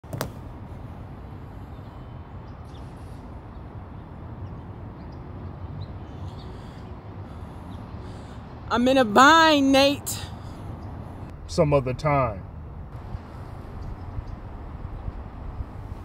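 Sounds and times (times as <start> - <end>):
steady low rumble: 10.8 - 16.0.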